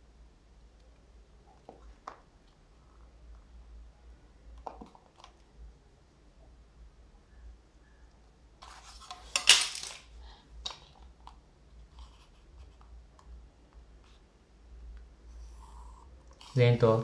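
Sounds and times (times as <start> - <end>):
plastic instruments clattering on desk: 9.2 - 10.1.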